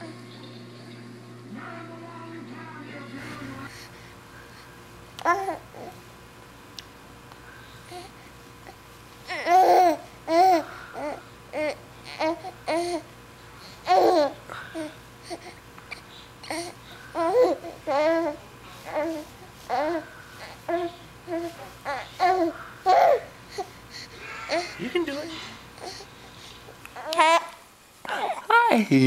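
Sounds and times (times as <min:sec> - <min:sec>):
infant babbling and cooing: 0:05.2 - 0:06.0, 0:09.3 - 0:13.1, 0:13.9 - 0:15.6, 0:16.4 - 0:26.1.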